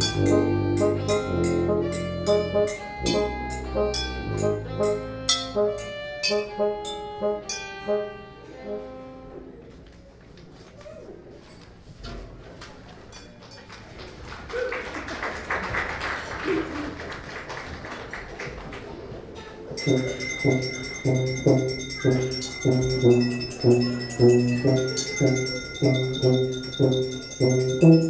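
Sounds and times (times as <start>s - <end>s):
chamber music with violin and tuba: 0.0s - 9.6s, 19.8s - 28.0s.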